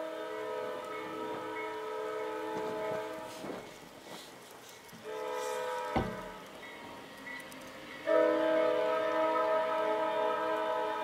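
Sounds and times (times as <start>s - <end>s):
locomotive air horn: 0.0s - 3.6s, 5.0s - 6.4s, 8.1s - 11.0s.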